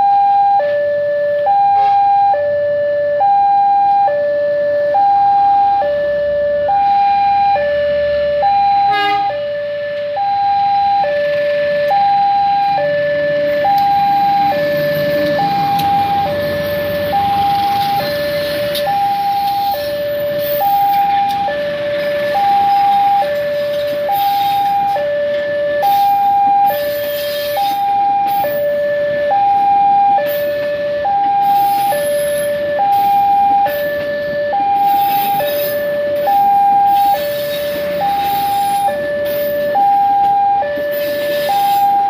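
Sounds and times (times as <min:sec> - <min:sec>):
diesel locomotive engine rumble: 0:00.0 - 0:42.0
level crossing two-tone alarm: 0:00.0 - 0:42.0
passenger coaches passing: 0:11.2 - 0:41.9.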